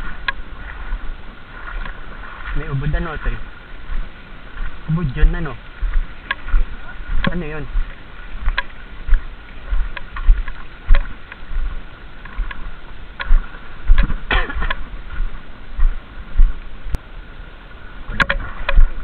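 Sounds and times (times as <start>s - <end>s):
water splashing around wading legs: 0.0s - 17.0s, 18.0s - 19.0s
sharp clicks and knocks: 18.1s - 18.9s.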